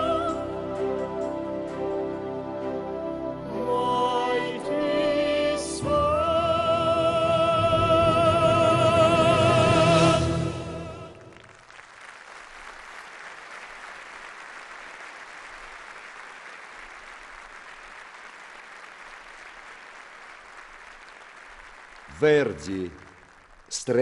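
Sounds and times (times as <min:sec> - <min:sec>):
orchestra playing: 0:00.0 - 0:11.3
audience applauding: 0:11.0 - 0:24.0.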